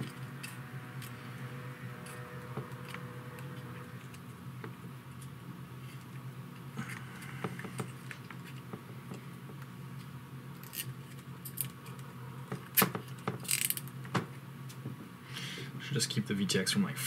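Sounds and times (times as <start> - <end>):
steady low hum: 0.0 - 17.0
clicks and rattles of handling parts: 13.0 - 13.9.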